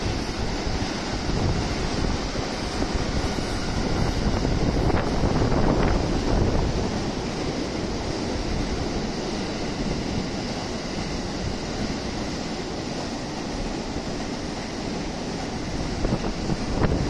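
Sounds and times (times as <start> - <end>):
wind on microphone: 0.0 - 12.4, 14.0 - 17.0
trains rumbling: 0.0 - 17.0.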